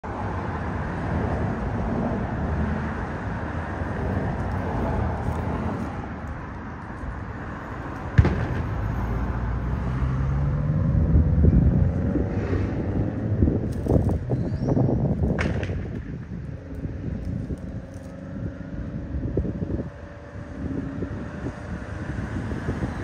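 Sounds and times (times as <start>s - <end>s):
low rumble of road traffic: 0.0s - 23.0s
engine hum rising in pitch: 8.4s - 15.1s, 16.4s - 23.0s.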